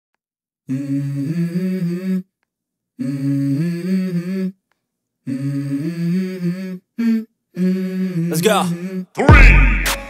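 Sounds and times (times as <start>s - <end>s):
person humming a melody: 0.7s - 2.3s, 3.0s - 4.6s, 5.2s - 10.0s.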